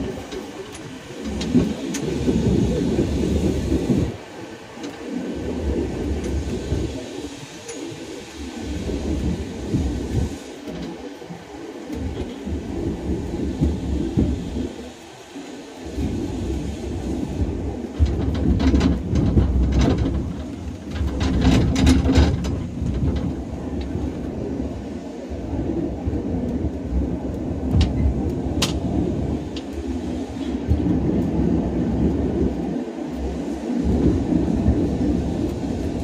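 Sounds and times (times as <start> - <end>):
tram rumbling on track: 0.0 - 36.0
sharp clicks and rattles: 18.0 - 24.0.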